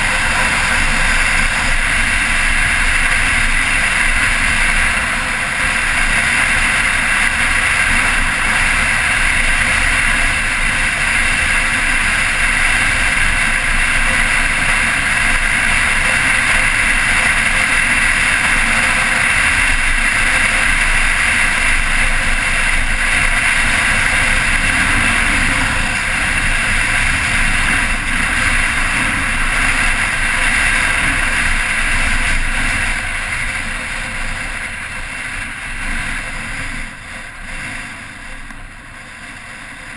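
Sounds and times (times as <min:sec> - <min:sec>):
motorcycle engine running: 0:00.0 - 0:39.9
wind rushing on microphone: 0:00.0 - 0:39.9.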